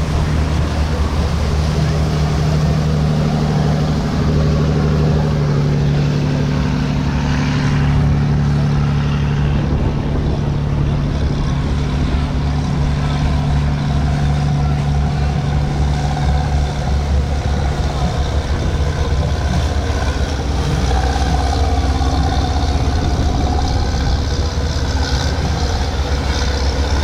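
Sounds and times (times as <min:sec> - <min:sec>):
boat engine droning: 0:00.0 - 0:27.0
water noise: 0:00.0 - 0:27.0
wind: 0:00.0 - 0:27.0.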